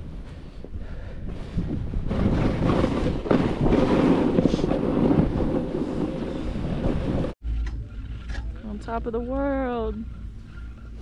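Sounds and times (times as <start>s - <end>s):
wind on microphone: 0.0s - 8.0s
snowboard scraping through snow: 2.0s - 7.3s.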